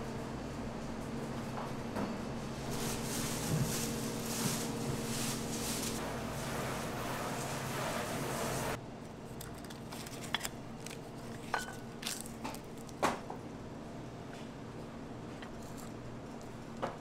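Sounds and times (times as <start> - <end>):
steady room noise: 0.0 - 17.0
dishes clicking and tapping: 11.4 - 12.6.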